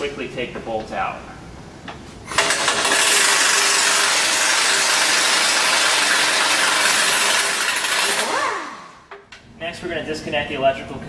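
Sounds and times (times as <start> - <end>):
pneumatic impact wrench running: 2.2 - 9.2.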